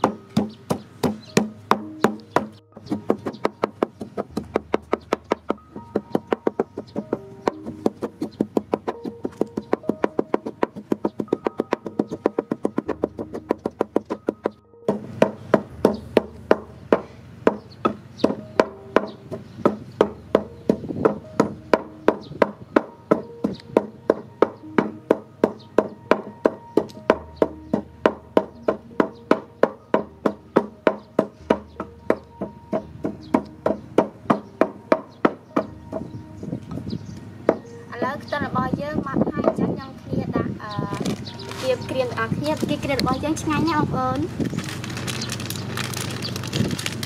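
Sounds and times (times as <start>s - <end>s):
wooden pestle pounding in mortar: 0.0s - 36.1s
quiet background music: 0.0s - 47.0s.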